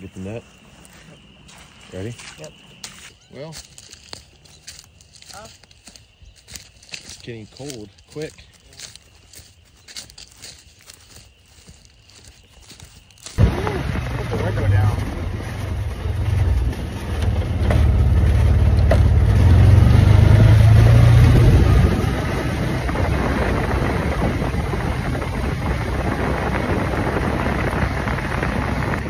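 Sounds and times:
utility vehicle engine running: 0:13.4 - 0:29.0.

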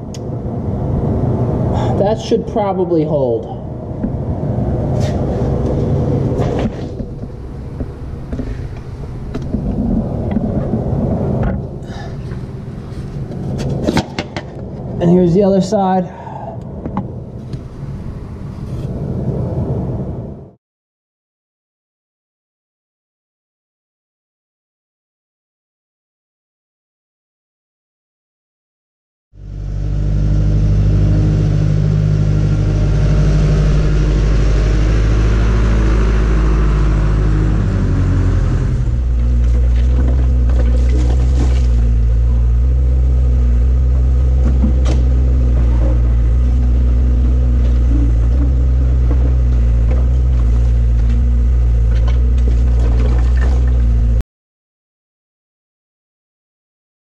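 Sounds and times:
diesel engine running: 0:00.0 - 0:18.8, 0:29.4 - 0:54.2.

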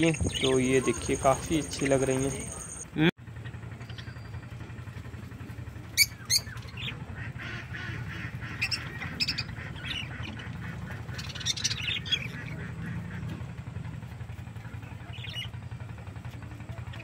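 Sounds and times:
parakeets squawking and chattering: 0:00.0 - 0:02.9, 0:06.0 - 0:13.5, 0:15.0 - 0:15.6
steady low hum: 0:00.0 - 0:17.0.

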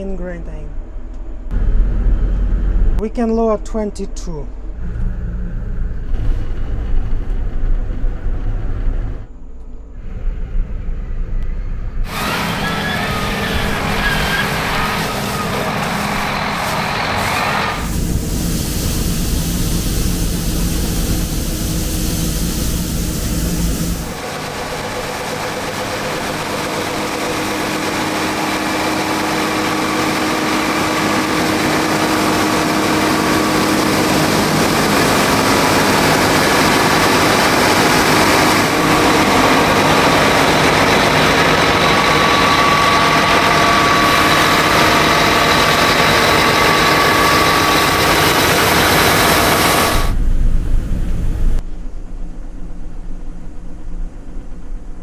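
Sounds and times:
low hum inside cab: 0:00.0 - 0:16.3, 0:17.3 - 0:28.6, 0:29.3 - 0:55.0
combine harvester running: 0:01.0 - 0:03.0, 0:04.7 - 0:55.0.

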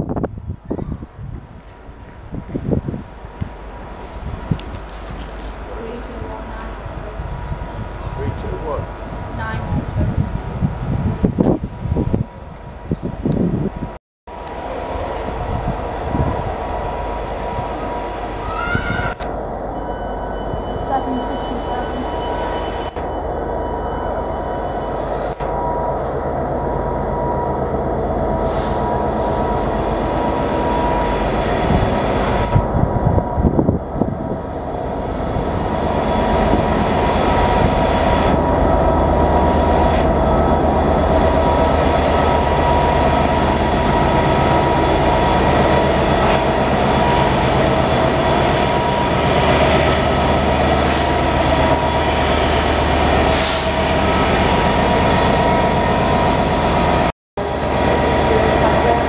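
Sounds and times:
diesel locomotive engine: 0:00.0 - 0:59.0
wheel squeal: 0:53.7 - 0:57.1.

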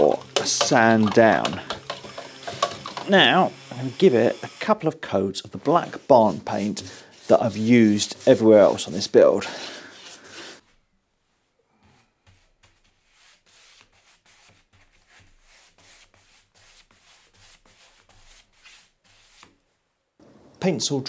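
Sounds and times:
paintbrush rubbing on wood: 0:05.6 - 0:10.6, 0:12.2 - 0:19.5.

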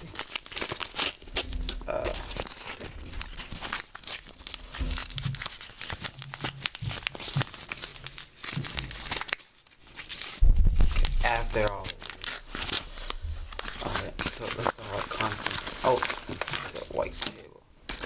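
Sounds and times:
padded mailer crinkling: 0:00.0 - 0:18.0.

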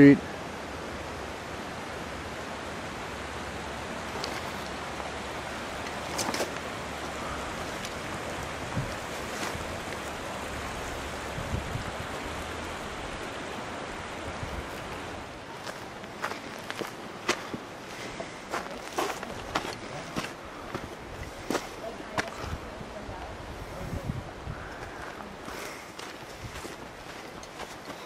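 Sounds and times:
creek flowing over rocks: 0:00.0 - 0:28.0
footsteps crunching on stones: 0:05.9 - 0:06.7, 0:08.8 - 0:10.2, 0:15.6 - 0:22.6, 0:24.8 - 0:28.0.

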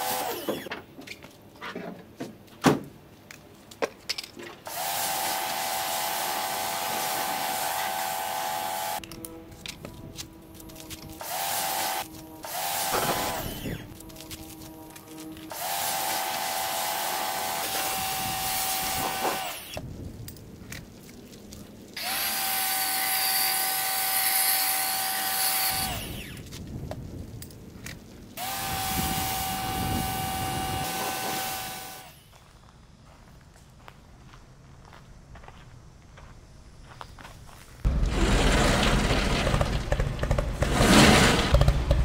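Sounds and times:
pressure washer motor whine: 0:04.7 - 0:09.4, 0:10.6 - 0:19.8, 0:28.4 - 0:32.3.

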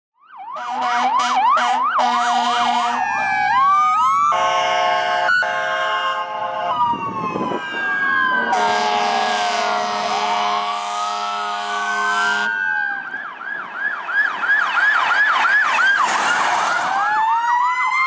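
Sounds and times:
emergency vehicle siren: 0:00.2 - 0:18.0
vehicle horn blast: 0:00.6 - 0:03.0, 0:04.3 - 0:06.7, 0:08.5 - 0:12.5.

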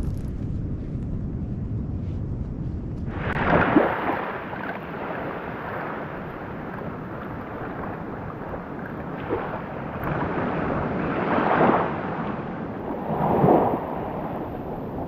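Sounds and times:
wind rumbling on microphone: 0:00.0 - 0:15.0
waves washing onto sand: 0:03.1 - 0:15.0.

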